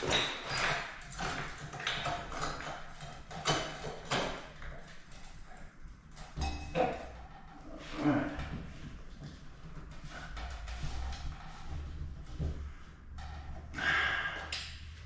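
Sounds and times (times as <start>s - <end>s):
metal wall sconce taps and clicks: 0.0s - 7.6s.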